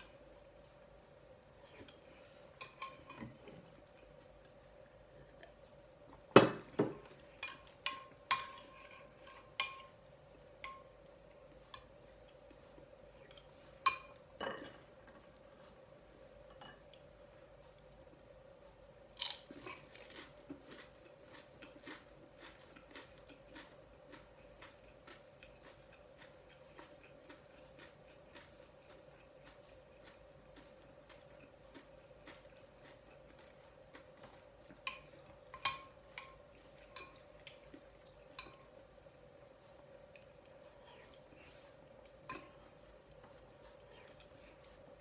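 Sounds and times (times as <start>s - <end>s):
faint steady hum: 0.0s - 45.0s
metal spoon clinking glass bowl: 13.8s - 14.8s
crunchy food being chewed: 19.1s - 45.0s.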